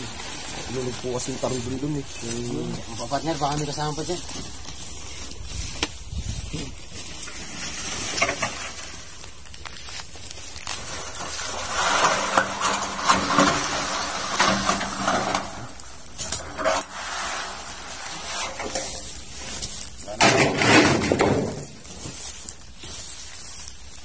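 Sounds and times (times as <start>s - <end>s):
dry brush rustling and crackling: 0.0s - 24.0s.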